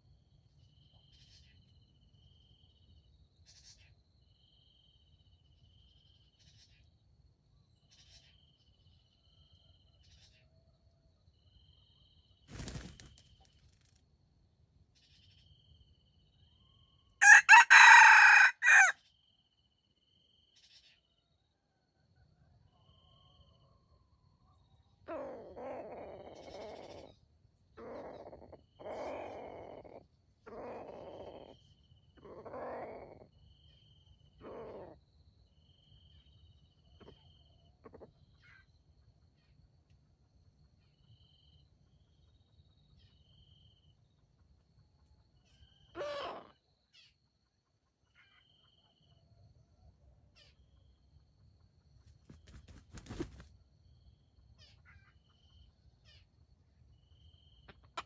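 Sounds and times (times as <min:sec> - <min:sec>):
wild chickens calling: 0:17.2 - 0:19.0.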